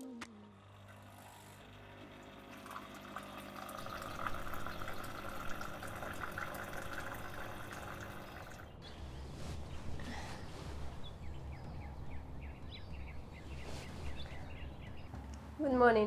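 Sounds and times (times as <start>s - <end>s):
espresso machine humming: 0.3s - 8.7s
liquid splashing into cups: 2.0s - 8.8s.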